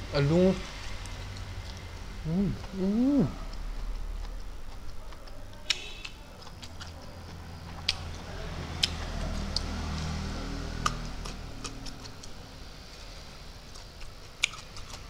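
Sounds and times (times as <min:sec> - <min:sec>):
low steady hum: 0:00.0 - 0:09.7
person chewing with lip smacks: 0:01.3 - 0:08.2, 0:08.8 - 0:09.7, 0:10.8 - 0:12.4, 0:13.6 - 0:15.0.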